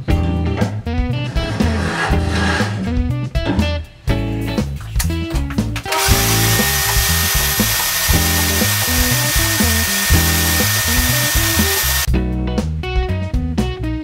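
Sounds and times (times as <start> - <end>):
vacuum cleaner running: 5.9 - 12.1.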